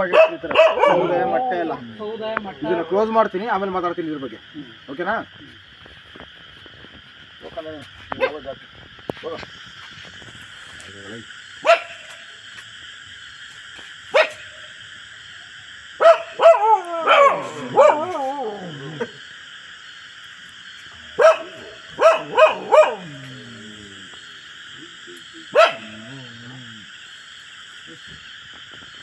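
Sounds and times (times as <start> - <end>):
dog barking and yelping: 0.0 - 1.7, 11.6 - 12.2, 16.0 - 19.2, 21.2 - 23.7, 25.5 - 26.4.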